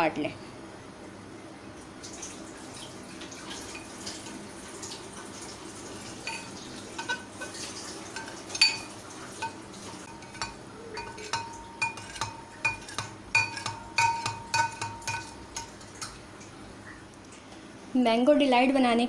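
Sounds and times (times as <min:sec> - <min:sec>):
knife tapping glass bowl: 0:08.2 - 0:16.2.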